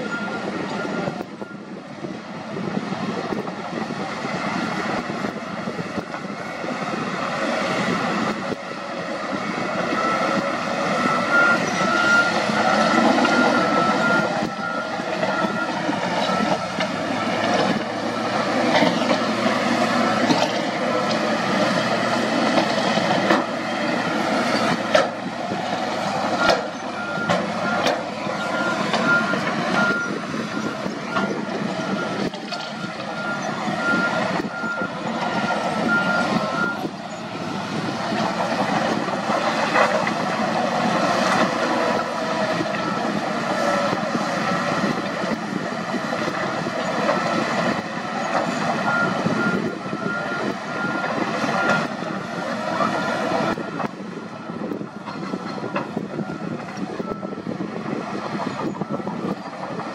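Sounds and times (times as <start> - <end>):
reversing alarm beeping: 0.0 - 1.8, 9.4 - 25.2, 25.9 - 39.9, 40.9 - 45.3, 47.1 - 57.6
diesel engines under load: 0.0 - 59.9.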